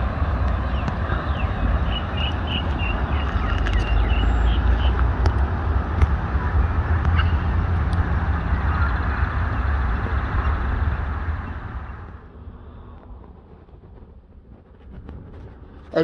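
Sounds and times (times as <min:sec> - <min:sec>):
wind buffeting microphone: 0:00.0 - 0:16.0
bird chirping: 0:00.6 - 0:05.1.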